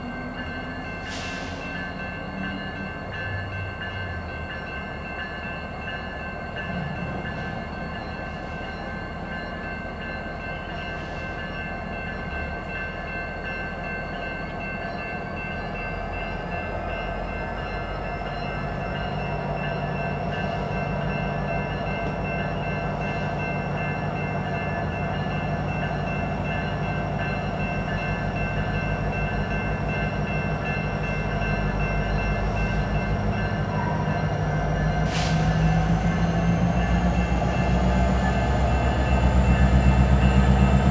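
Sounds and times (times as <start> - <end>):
locomotive engine running: 0.0 - 40.9.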